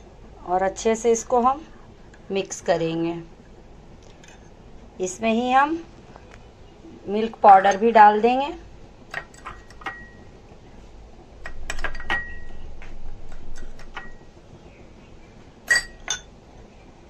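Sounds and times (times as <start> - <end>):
spoon clinking against glass bowls: 15.7 - 16.3.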